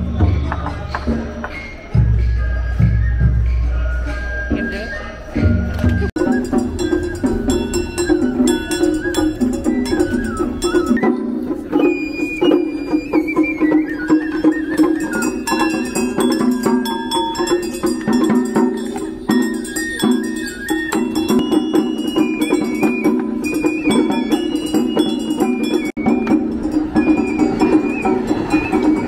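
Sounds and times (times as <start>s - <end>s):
light clicking percussion: 5.7s - 29.0s
stepping melody: 5.8s - 29.0s.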